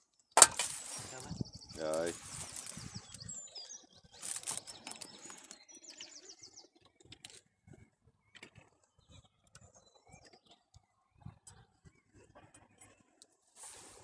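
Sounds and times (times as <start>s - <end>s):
songbird trilling: 0.7s - 6.6s
faint bird chirps: 0.7s - 14.0s
rustling and handling clicks: 1.8s - 2.9s, 4.2s - 5.6s.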